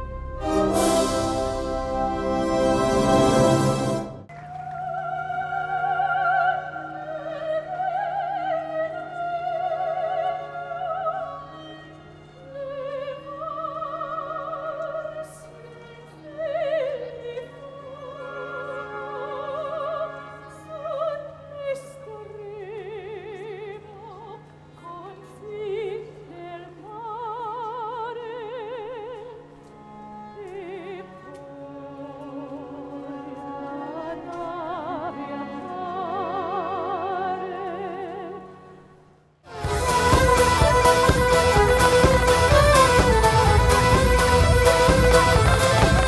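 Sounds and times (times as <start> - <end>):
soprano singing opera: 4.4 - 29.4, 30.4 - 38.8.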